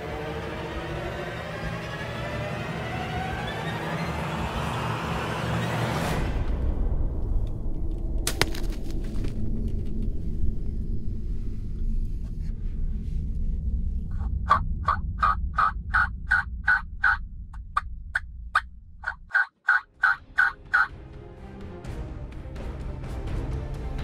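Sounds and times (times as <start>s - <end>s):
wind rumble: 6.1s - 19.3s
wild turkey yelps: 19.3s - 20.9s.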